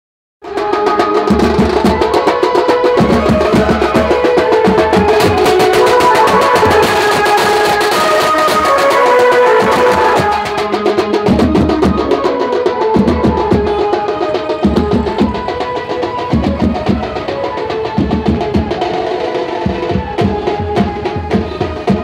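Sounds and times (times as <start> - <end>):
snare and bass drums beating: 0.4 - 22.0
brass horns playing melody: 3.2 - 11.0.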